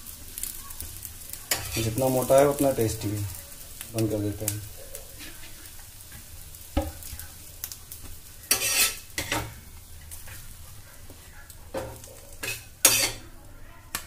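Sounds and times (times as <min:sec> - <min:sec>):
faint sizzling: 0:00.0 - 0:14.0
metal spatula scraping on pan: 0:01.4 - 0:03.3, 0:04.7 - 0:06.2, 0:08.4 - 0:14.0.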